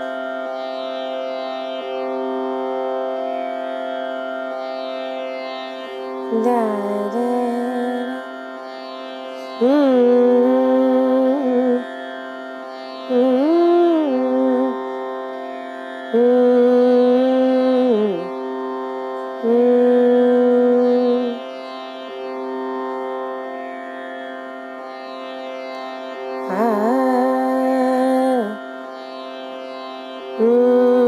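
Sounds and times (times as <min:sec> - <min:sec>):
electronic tanpura drone: 0:00.0 - 0:31.0
woman singing long notes: 0:06.3 - 0:08.3, 0:09.5 - 0:11.9, 0:13.1 - 0:14.8, 0:16.1 - 0:18.3, 0:19.4 - 0:21.4, 0:26.5 - 0:28.6, 0:30.4 - 0:31.0.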